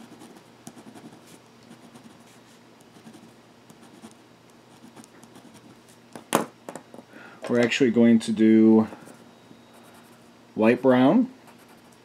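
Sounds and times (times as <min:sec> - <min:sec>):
pen scratching on paper: 0:00.0 - 0:05.8.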